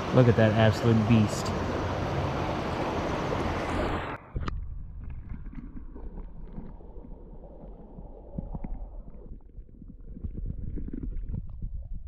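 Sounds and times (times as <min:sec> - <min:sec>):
creek water rushing: 0:00.0 - 0:04.2
low underwater rumble: 0:04.2 - 0:12.0
faint underwater clicks: 0:04.4 - 0:12.0.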